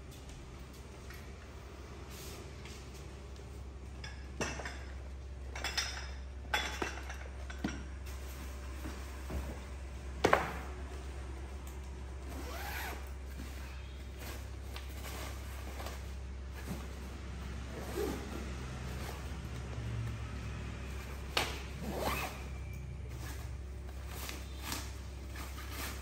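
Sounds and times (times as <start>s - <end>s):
paper and fabric bags rustling: 12.1s - 20.0s, 20.8s - 26.0s.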